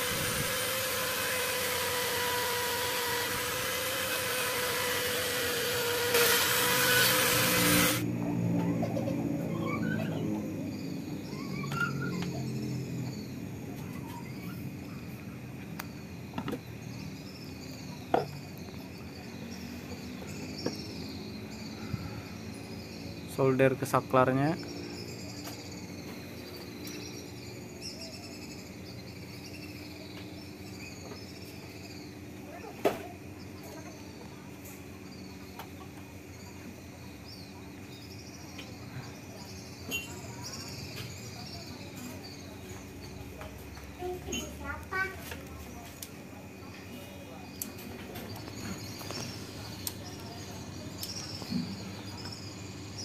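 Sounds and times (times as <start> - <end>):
steady low hum: 0.0 - 11.7
faint high chirping: 8.2 - 53.0
faint high chirps: 24.4 - 45.0.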